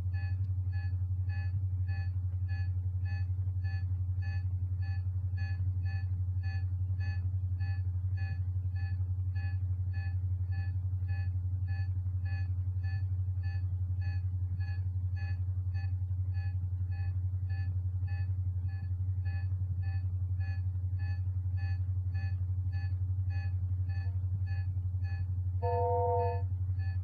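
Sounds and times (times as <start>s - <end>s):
low electronic hum: 0.0s - 27.0s
high electronic beeps: 25.6s - 26.4s.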